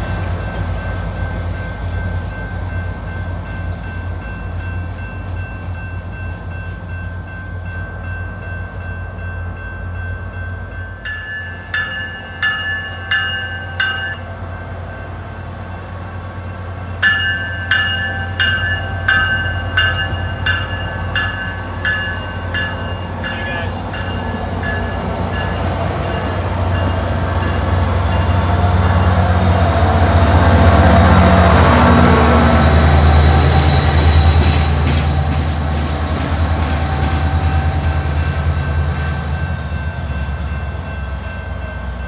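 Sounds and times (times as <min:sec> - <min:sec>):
train bell ringing: 0:00.0 - 0:29.6, 0:30.5 - 0:42.0
diesel train engine running: 0:11.6 - 0:42.0.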